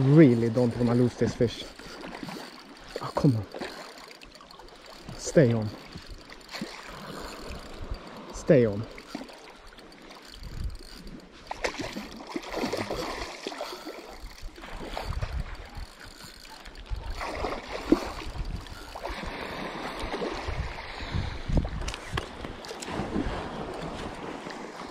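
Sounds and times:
fishing rod and reel handling: 0:00.0 - 0:24.9.

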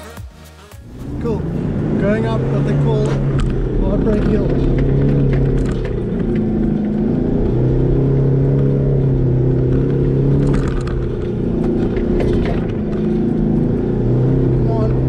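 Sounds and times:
truck engine running: 0:00.0 - 0:15.0
knocks and rattles of truck: 0:01.8 - 0:15.0.

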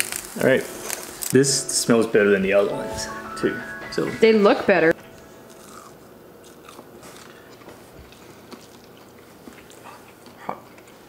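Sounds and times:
people chewing: 0:05.5 - 0:11.0.

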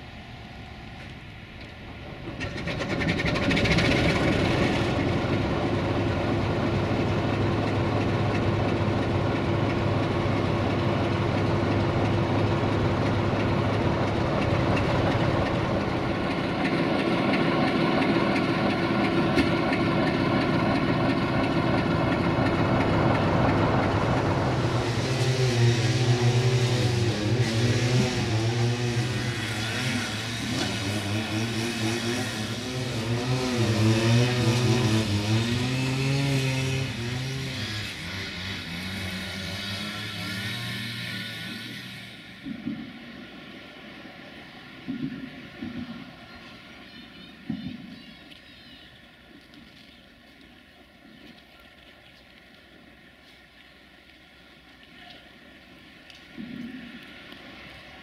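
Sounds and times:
diesel locomotive engine starting: 0:00.0 - 0:43.2.

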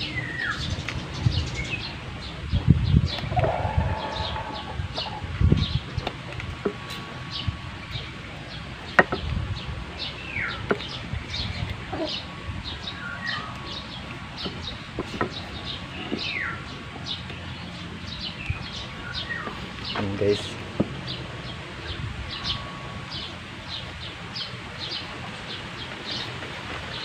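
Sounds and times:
birds chirping: 0:00.0 - 0:27.0
bird falling call: 0:03.1 - 0:05.3.

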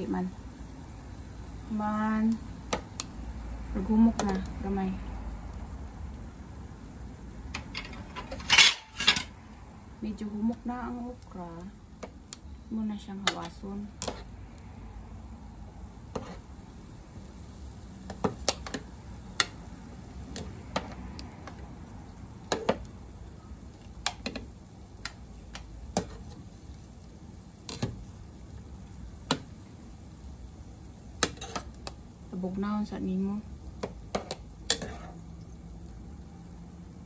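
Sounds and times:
metal tongs clinking on pot: 0:07.6 - 0:09.4.

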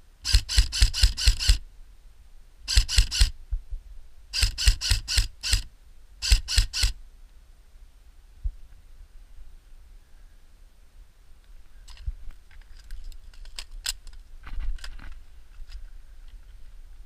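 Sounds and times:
airsoft rifle rapid shots: 0:00.2 - 0:01.6, 0:02.7 - 0:03.3, 0:04.4 - 0:07.0.

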